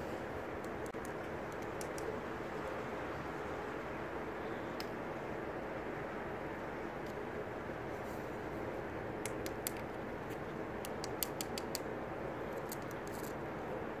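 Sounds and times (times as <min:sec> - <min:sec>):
outdoor background hiss: 0:00.0 - 0:14.0
sharp high clicks and ticks: 0:00.6 - 0:02.1, 0:10.8 - 0:11.9.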